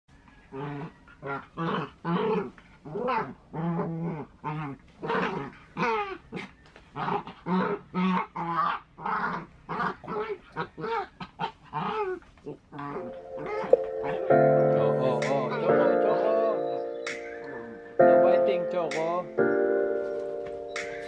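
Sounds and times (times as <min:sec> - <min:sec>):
small dogs growling and snarling: 0:00.5 - 0:14.3.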